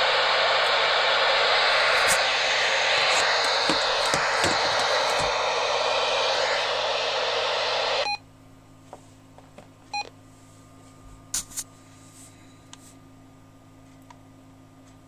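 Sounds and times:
radio static hissing: 0.0s - 8.2s.

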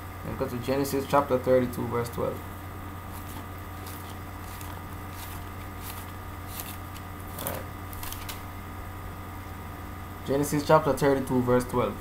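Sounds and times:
low electrical hum: 0.0s - 12.0s
paper pages rustling: 3.1s - 8.5s.

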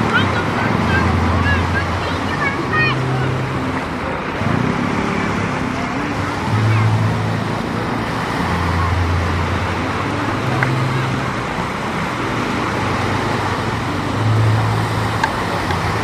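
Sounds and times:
low droning hum: 0.0s - 16.0s
surf rushing: 0.0s - 16.0s
wind: 0.0s - 16.0s.

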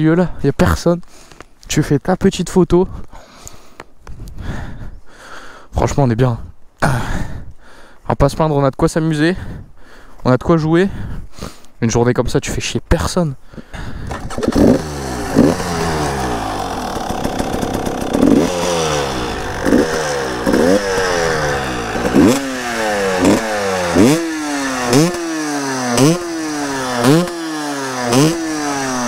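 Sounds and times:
two-stroke engine revving: 14.1s - 29.0s.

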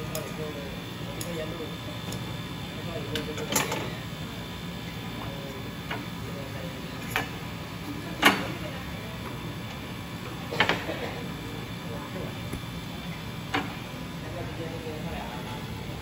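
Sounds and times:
factory machinery hum: 0.0s - 16.0s.

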